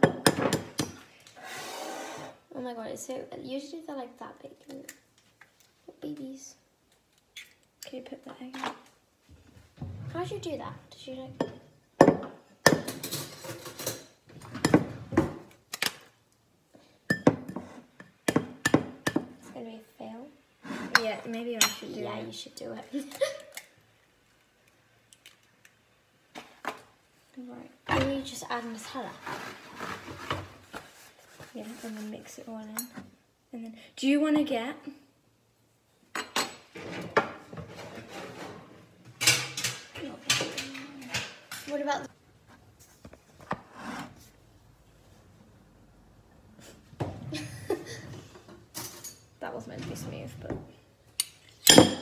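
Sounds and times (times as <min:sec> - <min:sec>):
scraping and rustling: 0:28.5 - 0:32.5, 0:36.7 - 0:38.9
spoon and dishes clinking: 0:51.2 - 0:52.0.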